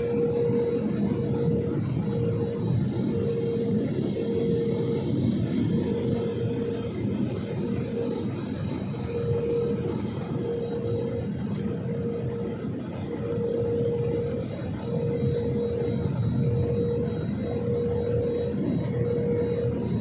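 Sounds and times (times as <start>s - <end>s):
jet engine rumble in cabin: 0.0s - 20.0s
pulsing hum: 0.0s - 20.0s.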